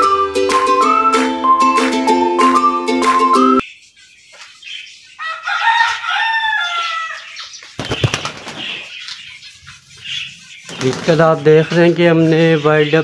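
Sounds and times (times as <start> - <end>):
rooster crowing: 5.2 - 7.4
wing flapping: 7.7 - 9.0, 10.6 - 11.4.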